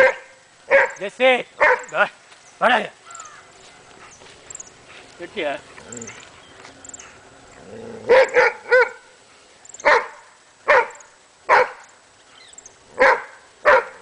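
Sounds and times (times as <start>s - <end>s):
dog barking: 0.0s - 1.0s, 1.6s - 1.9s, 8.1s - 9.1s, 9.8s - 11.8s, 13.0s - 14.0s.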